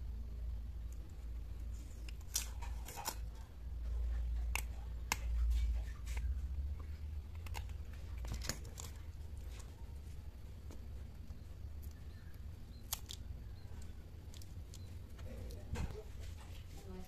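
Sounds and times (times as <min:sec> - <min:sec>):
paper film peeling crackles: 0:01.6 - 0:03.4.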